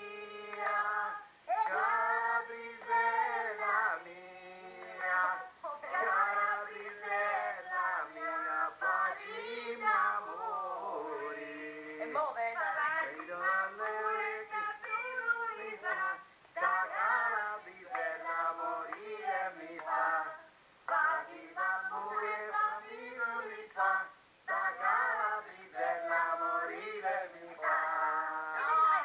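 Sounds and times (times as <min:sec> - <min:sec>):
women singing folk song: 0:00.0 - 0:29.0.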